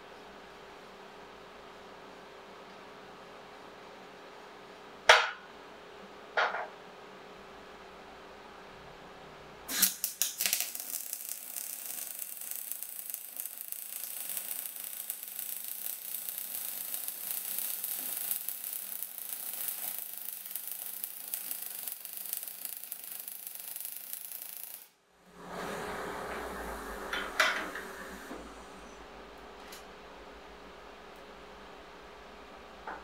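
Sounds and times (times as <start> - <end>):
welding arc crackling: 9.7 - 25.0.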